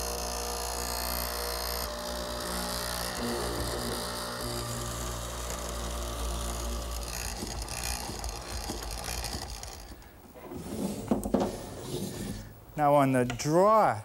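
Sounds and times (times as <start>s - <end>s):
mortiser drilling into wood: 0.0s - 10.2s
wooden knocks: 7.0s - 10.1s.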